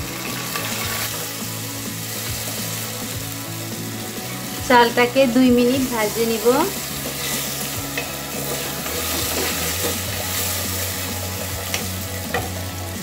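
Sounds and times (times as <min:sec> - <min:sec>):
rice sizzling in hot oil: 0:00.0 - 0:13.0
wooden spatula scraping metal pot: 0:06.1 - 0:12.5.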